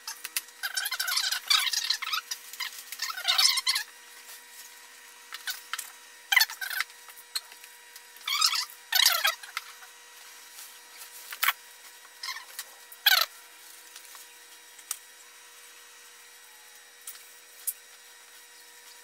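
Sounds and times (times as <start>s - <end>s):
faint steady hum: 0.0s - 19.0s
squeaky foam rubs: 0.6s - 3.9s.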